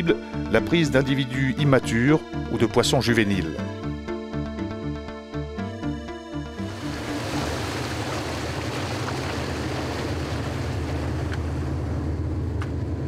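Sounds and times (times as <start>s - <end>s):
boat engine humming: 3.4s - 13.0s
wind and sea hiss: 6.7s - 12.0s.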